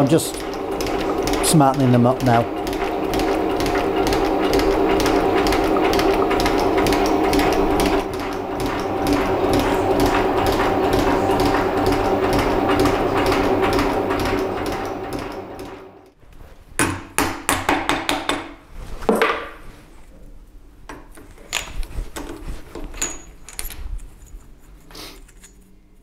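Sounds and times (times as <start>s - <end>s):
metal shaper cutting steel: 0.0s - 15.8s.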